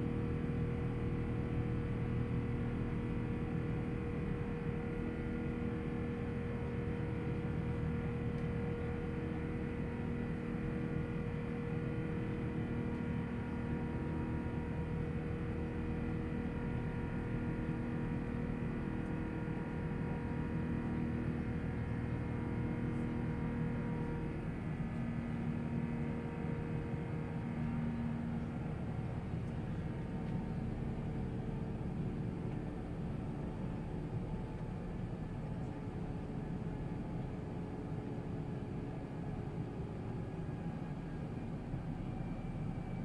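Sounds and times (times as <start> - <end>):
airplane engine and airflow noise: 0.0 - 43.0.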